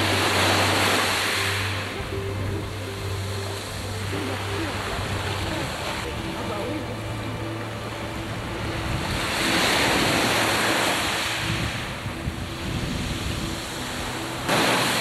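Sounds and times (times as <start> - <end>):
waves rushing: 0.0 - 15.0
wind buffeting microphone: 1.6 - 14.5.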